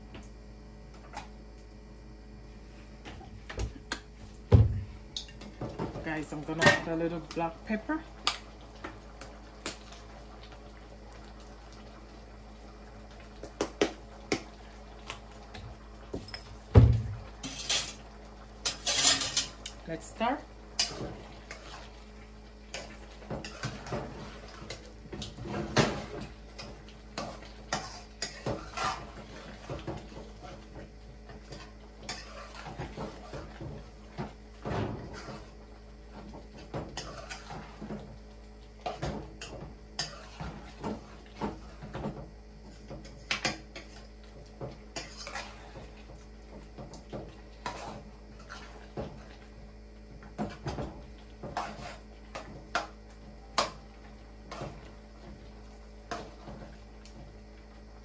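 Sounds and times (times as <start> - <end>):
spoon scraping cooking pot: 27.2 - 29.1, 45.0 - 45.8, 51.4 - 52.1.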